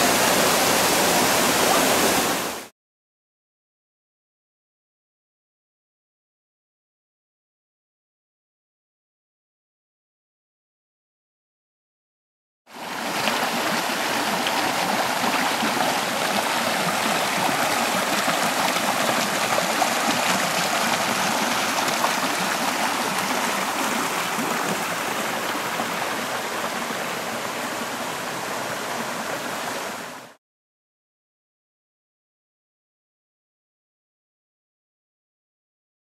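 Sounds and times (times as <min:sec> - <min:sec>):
brook running over rocks: 0:12.7 - 0:30.3.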